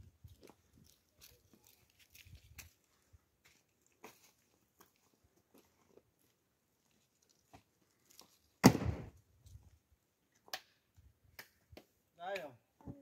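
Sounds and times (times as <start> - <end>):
loud thump: 8.6 - 9.1.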